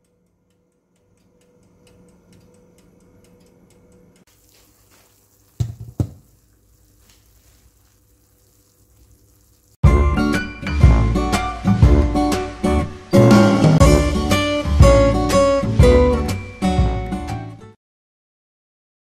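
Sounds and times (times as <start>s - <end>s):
faint ticking: 0.0s - 4.3s
oven fan humming: 0.0s - 9.8s.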